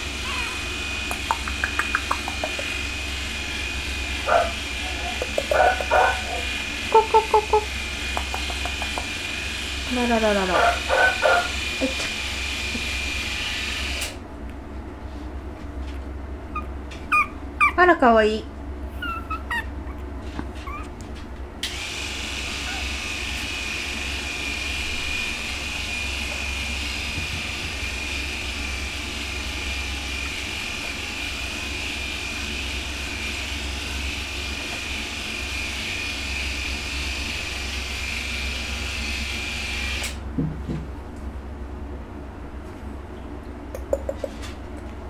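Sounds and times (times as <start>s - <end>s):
puppy squeak: 0.2s - 0.7s, 16.5s - 17.8s, 18.9s - 21.0s, 22.5s - 23.0s.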